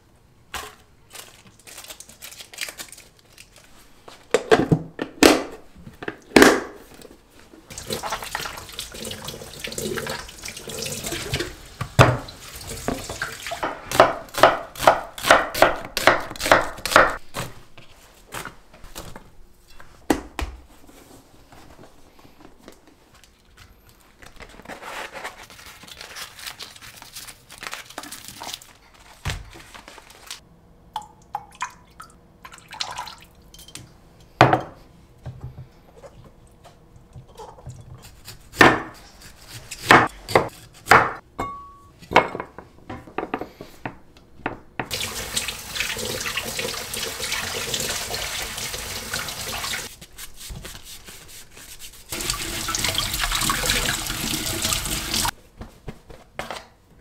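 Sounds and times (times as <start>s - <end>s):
water running from tap: 7.7s - 13.6s, 44.9s - 49.9s, 52.1s - 55.3s
knife cutting onion on board: 13.7s - 17.5s, 37.9s - 41.2s.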